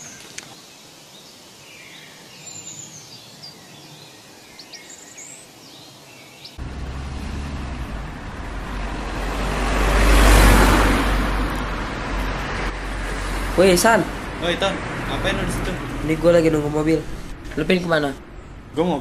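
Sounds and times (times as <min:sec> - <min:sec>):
birds chirping: 0:00.0 - 0:19.0
motor vehicle rumble: 0:06.6 - 0:19.0
street noise: 0:06.6 - 0:19.0.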